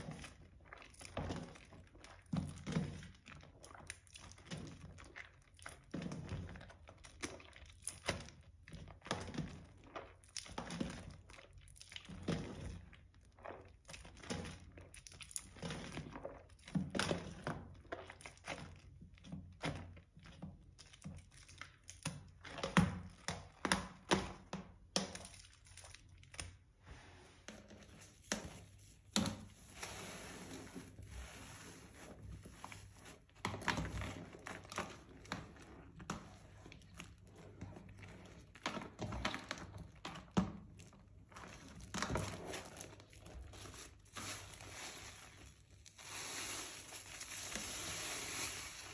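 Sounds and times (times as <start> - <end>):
wet squelching soap: 0.0 - 48.9
crackling foam: 41.0 - 48.9.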